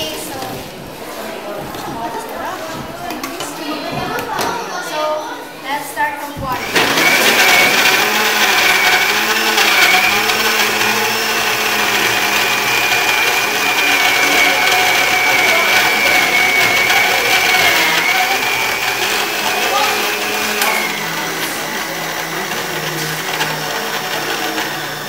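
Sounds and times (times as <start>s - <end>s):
electric blender running: 6.5s - 25.0s.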